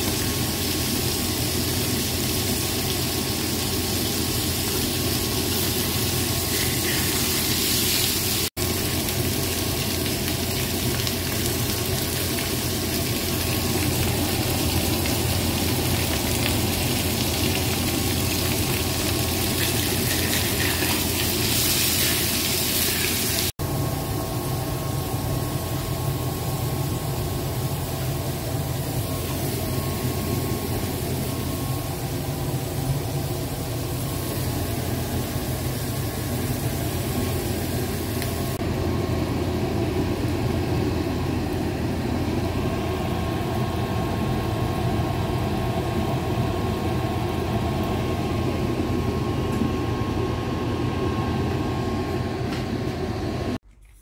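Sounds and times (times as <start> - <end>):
fish frying in oil: 0.0 - 23.8
low mechanical hum: 0.0 - 54.0.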